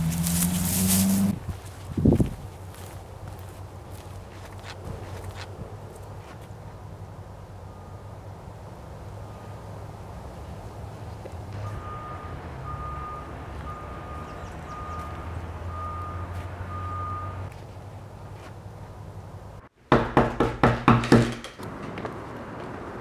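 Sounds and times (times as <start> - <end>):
reversing alarm beeping: 11.6 - 17.5.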